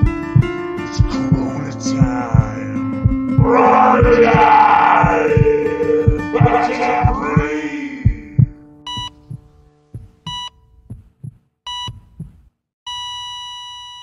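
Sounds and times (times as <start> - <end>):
music: 0.0 - 10.9
heartbeat thumping: 0.0 - 12.6
patient monitor beeps: 1.1 - 9.2, 10.3 - 10.6, 11.7 - 12.0.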